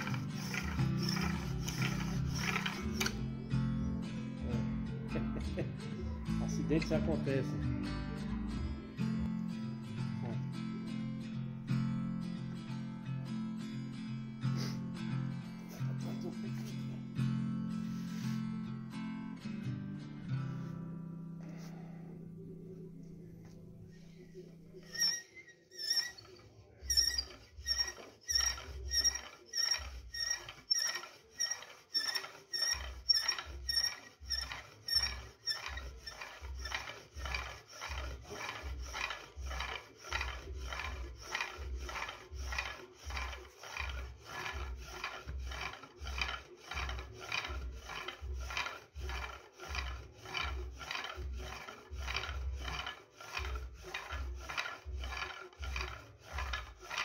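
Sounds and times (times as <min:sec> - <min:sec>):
sharp squeaks: 0:00.0 - 0:03.2, 0:24.6 - 0:57.0
wooden spindle grinding into board: 0:00.0 - 0:03.4, 0:24.2 - 0:57.0.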